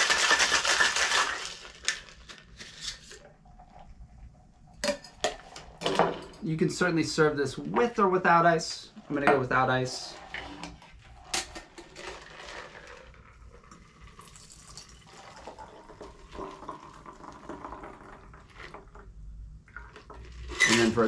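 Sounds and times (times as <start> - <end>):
liquid pouring into glass: 13.2 - 18.9.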